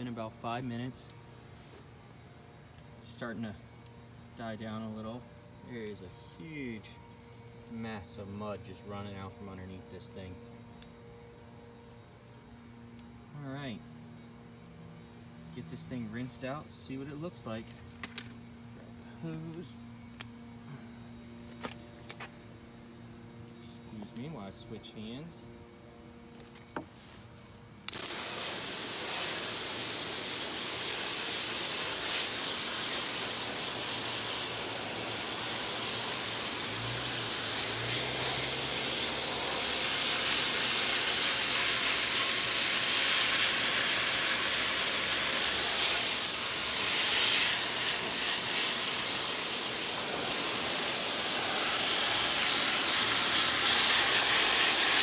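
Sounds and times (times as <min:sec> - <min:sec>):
hose spray hissing: 0:27.9 - 0:55.0.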